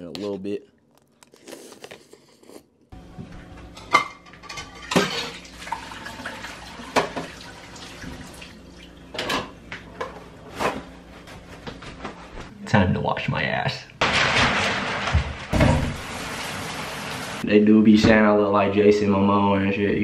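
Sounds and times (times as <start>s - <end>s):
dishes and cutlery clinking: 3.6s - 5.4s
running tap water: 4.3s - 9.1s, 15.5s - 17.4s.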